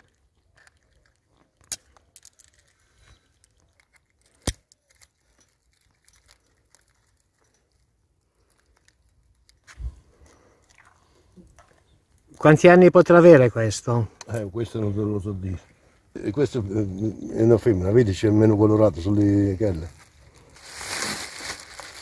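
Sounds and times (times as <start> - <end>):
pliers cracking crab shell: 3.8 - 5.1.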